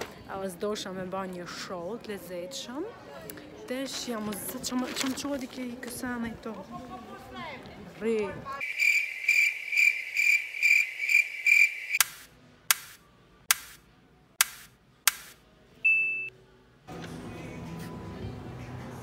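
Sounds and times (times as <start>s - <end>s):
high pulsing cricket chirp: 8.6s - 12.0s
short beep: 15.8s - 16.3s
background music: 16.6s - 19.0s.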